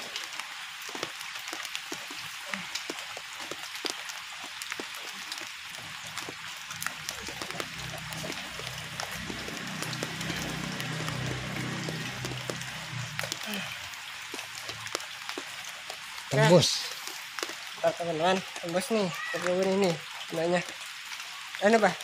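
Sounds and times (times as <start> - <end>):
rain drops on pond water: 0.0 - 22.0
low steady hum: 5.8 - 14.9
low background music: 6.8 - 13.5.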